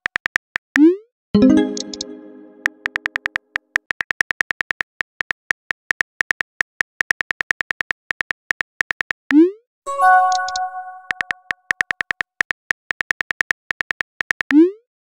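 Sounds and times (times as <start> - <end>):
brief chime: 9.9 - 11.4
phone keyboard typing clicks: 10.1 - 12.2.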